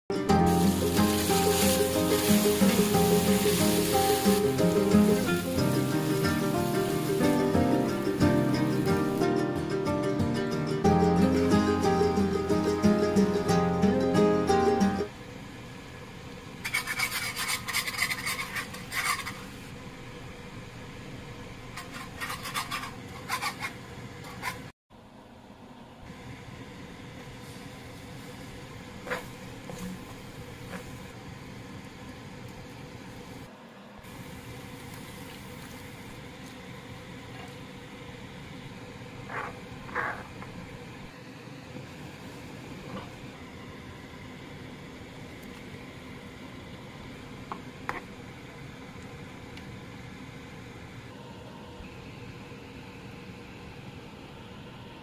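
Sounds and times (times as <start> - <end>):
low sizzle: 0.1 - 55.0
liquid sizzling in frying pan: 0.3 - 9.6, 27.4 - 33.4, 34.1 - 38.0
whisk scraping metal pan: 16.6 - 19.5, 21.8 - 24.7.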